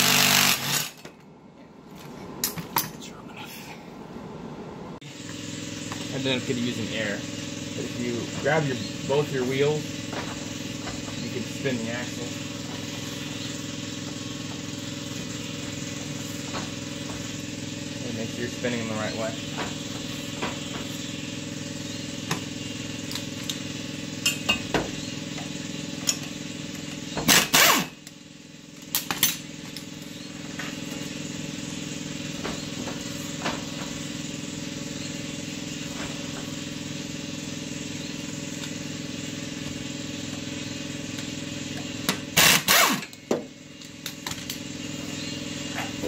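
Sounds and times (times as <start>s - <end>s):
steady background hum: 0.3s - 46.0s.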